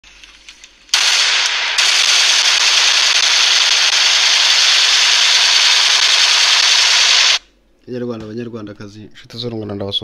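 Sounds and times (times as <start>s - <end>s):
loud dense crackling: 0.9s - 7.4s.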